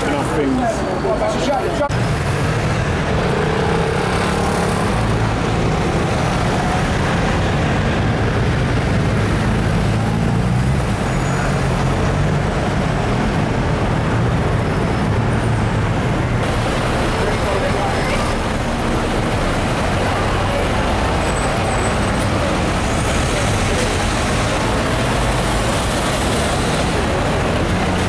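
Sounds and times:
buses and cars passing: 0.0s - 28.0s.

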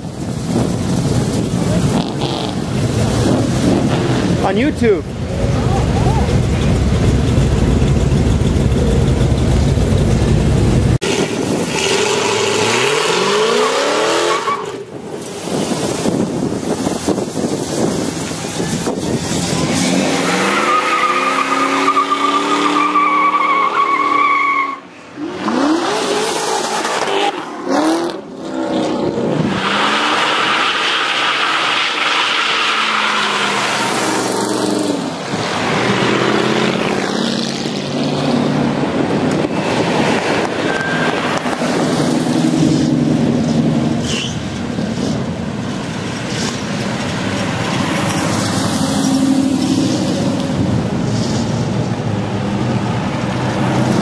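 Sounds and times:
engines revving hard: 0.2s - 24.2s, 25.2s - 45.3s
tires squealing: 11.0s - 45.4s, 46.0s - 54.0s.

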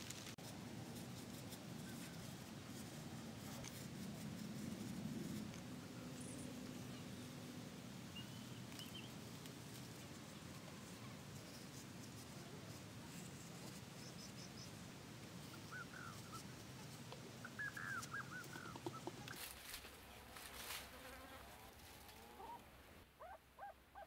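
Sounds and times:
bird chirps: 17.4s - 19.4s.

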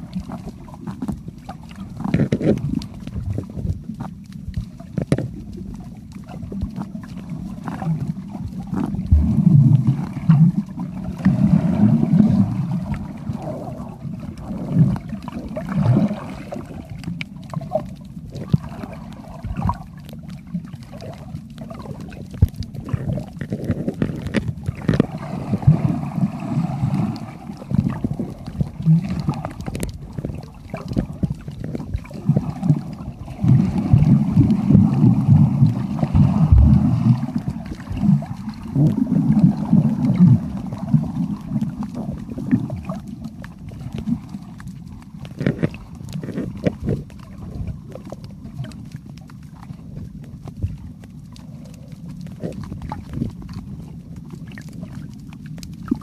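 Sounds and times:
low underwater rumbling: 0.0s - 56.0s
sharp underwater clicks: 16.9s - 25.2s, 33.6s - 56.0s.

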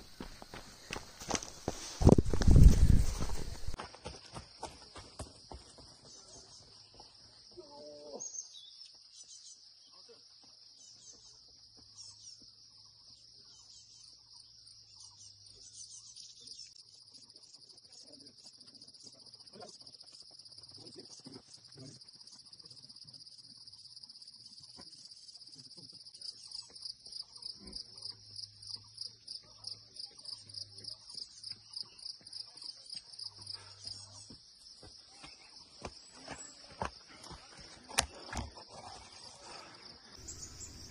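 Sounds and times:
insects chirring: 0.0s - 3.8s, 6.5s - 40.9s.

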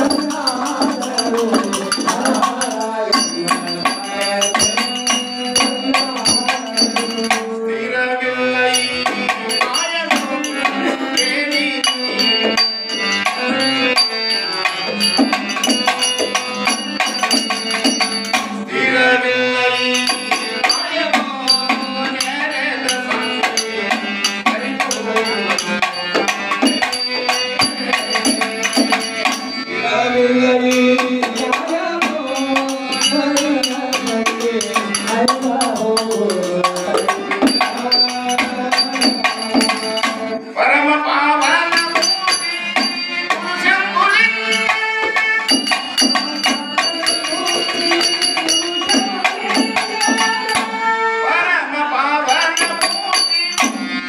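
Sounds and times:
hand drum beat: 0.0s - 7.5s, 14.6s - 18.6s, 20.0s - 29.5s, 30.8s - 40.3s, 44.5s - 50.9s, 52.3s - 54.0s
small hand cymbals: 30.7s - 40.2s, 41.4s - 43.5s, 44.2s - 50.9s, 52.3s - 54.0s.

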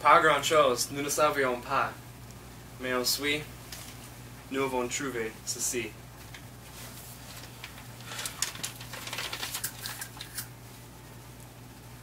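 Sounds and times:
steady low hum: 0.0s - 12.0s
paper rustling and crinkling: 6.2s - 10.5s.

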